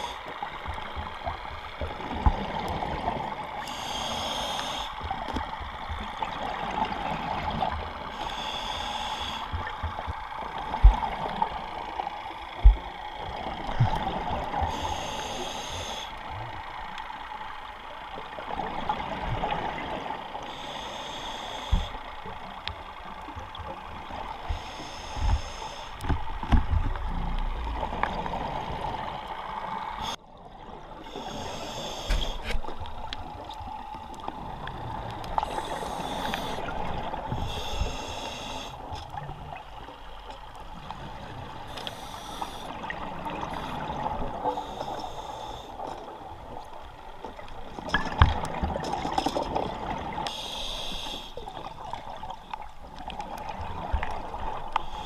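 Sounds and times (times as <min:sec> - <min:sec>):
regulator hiss on inhalation: 0:03.6 - 0:05.0, 0:08.1 - 0:09.5, 0:14.7 - 0:16.2, 0:20.5 - 0:22.0, 0:24.5 - 0:26.0, 0:31.1 - 0:32.6, 0:35.4 - 0:36.8, 0:37.4 - 0:38.8, 0:41.7 - 0:42.8, 0:44.6 - 0:45.9, 0:50.3 - 0:51.4.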